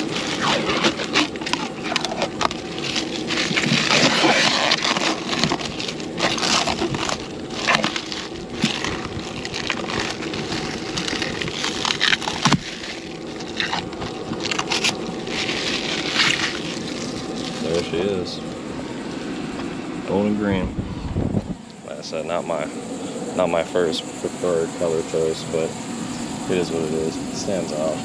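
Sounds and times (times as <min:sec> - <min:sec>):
wrapping crackling rustles: 0:00.0 - 0:19.4.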